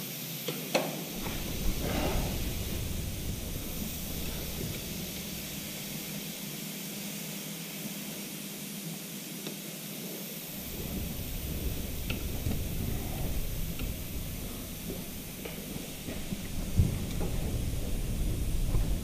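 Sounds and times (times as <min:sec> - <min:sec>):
steady hiss: 0:00.8 - 0:07.3, 0:10.2 - 0:19.0
low hum: 0:01.1 - 0:06.5, 0:10.5 - 0:19.0.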